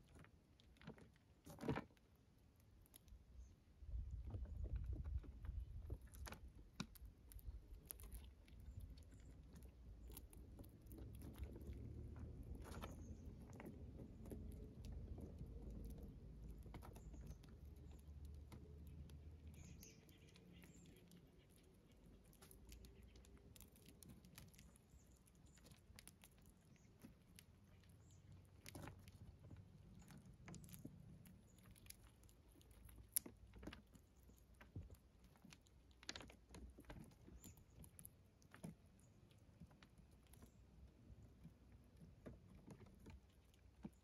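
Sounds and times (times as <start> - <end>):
animals chewing corn kernels: 0.0 - 44.0.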